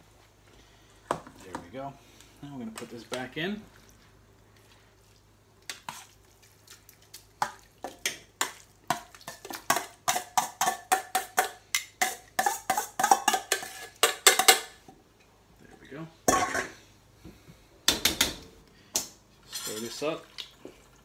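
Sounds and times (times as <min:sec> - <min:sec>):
spoon scraping metal bowl: 0:10.1 - 0:14.6.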